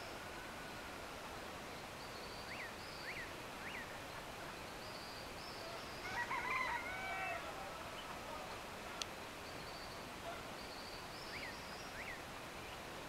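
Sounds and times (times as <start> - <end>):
rooster crowing: 6.0 - 7.8.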